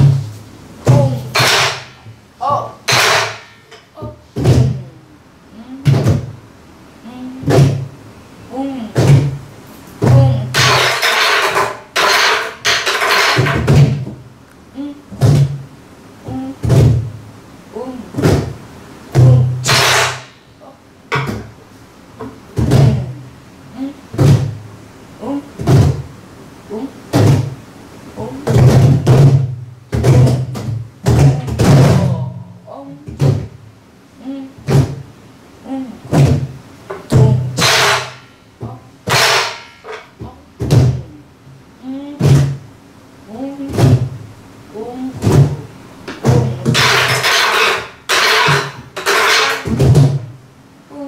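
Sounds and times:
drum stick sharp cracks: 0:19.6 - 0:20.4.

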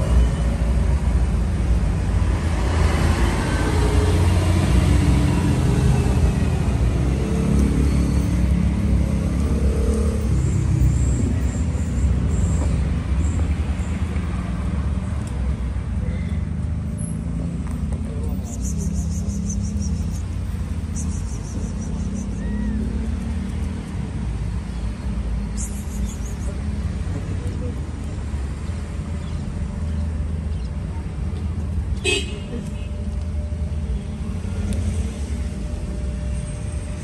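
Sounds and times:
low rumble of road traffic: 0:00.0 - 0:37.0
vehicle passing: 0:01.9 - 0:12.2.

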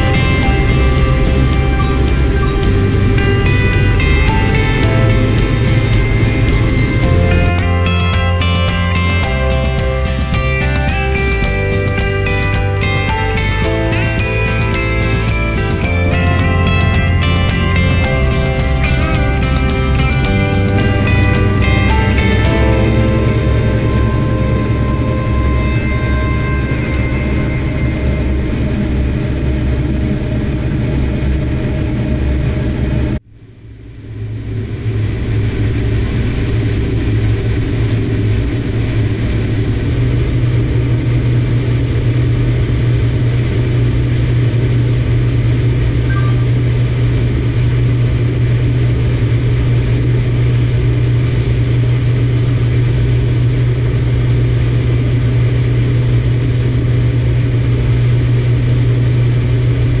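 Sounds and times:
farm machine engine droning: 0:00.0 - 0:33.2.

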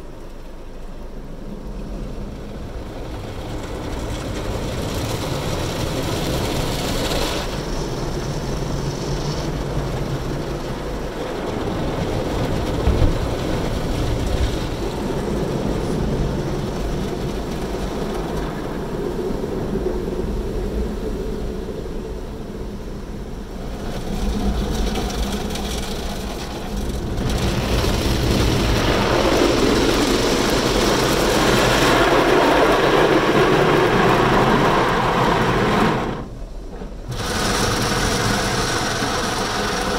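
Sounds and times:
car wash machinery running: 0:00.0 - 0:39.9
cloth brushes scrubbing car: 0:36.8 - 0:39.9
water spraying on glass: 0:37.1 - 0:39.9.

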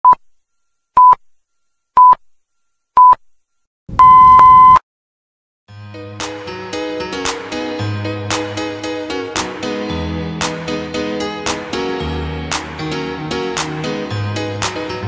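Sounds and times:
music: 0:05.7 - 0:15.0.

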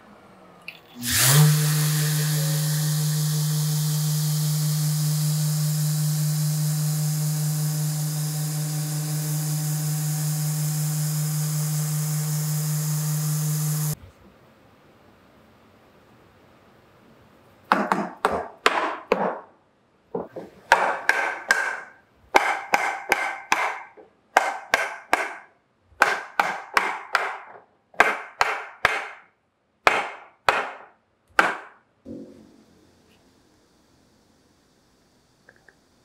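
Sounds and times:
mallet knocking on wood: 0:17.7 - 0:19.5, 0:20.2 - 0:25.4, 0:26.0 - 0:29.2, 0:29.9 - 0:32.4.

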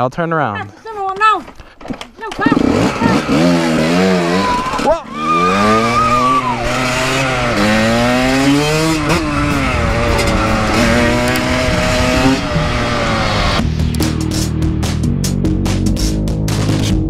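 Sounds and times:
dirt bike engine revving: 0:02.2 - 0:13.7.

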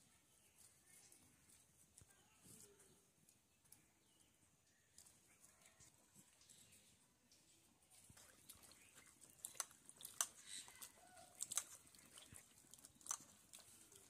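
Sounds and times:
twigs crackling in a fire: 0:08.4 - 0:14.0.

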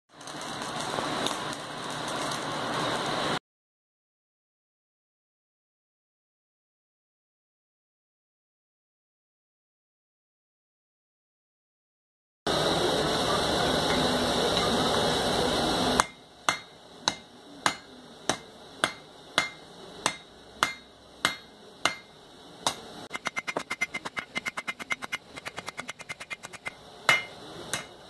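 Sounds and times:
hammer striking iron on anvil: 0:16.0 - 0:28.0
steady noise: 0:23.0 - 0:27.3.

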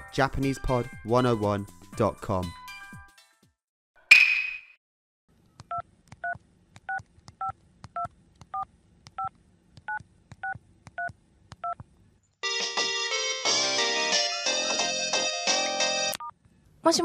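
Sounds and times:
light background music: 0:00.0 - 0:03.1.

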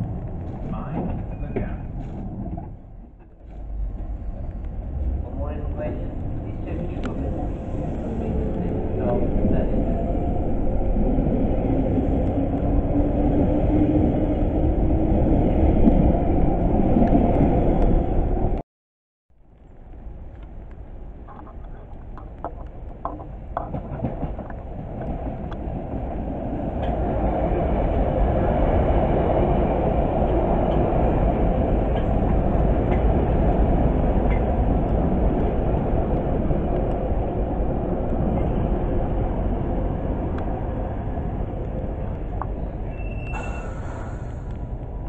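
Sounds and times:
underground train rumbling past: 0:00.0 - 0:18.6, 0:19.5 - 0:45.0.

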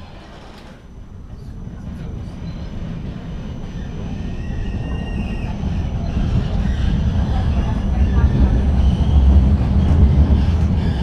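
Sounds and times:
tram rumbling on rails: 0:00.0 - 0:11.0.

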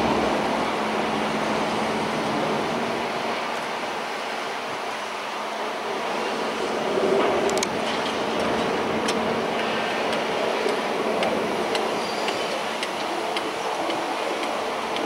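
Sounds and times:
distant heavy machinery hum: 0:05.6 - 0:15.0.

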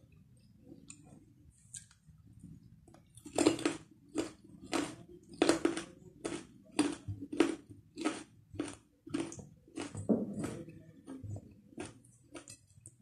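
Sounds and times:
person chewing carrot: 0:03.1 - 0:13.0.

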